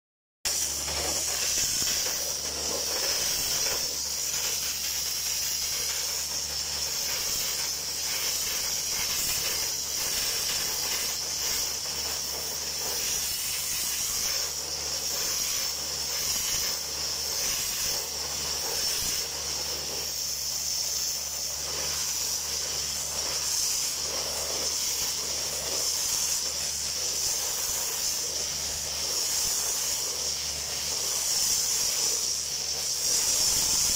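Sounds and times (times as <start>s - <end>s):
sandblasting hiss: 0.4s - 33.9s.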